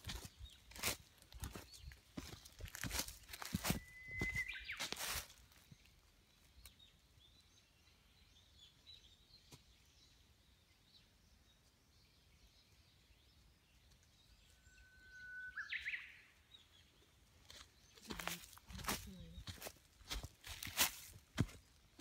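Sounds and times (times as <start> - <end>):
faint bird calls: 3.4 - 5.3, 14.3 - 16.4
whistled bird note sweeping upward: 14.6 - 16.1.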